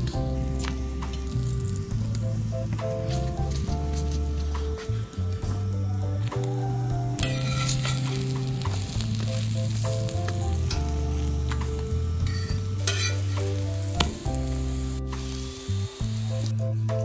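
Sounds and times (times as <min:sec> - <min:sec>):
background music with bass line: 0:00.0 - 0:17.0
flatbread sizzling in oil: 0:04.0 - 0:16.6.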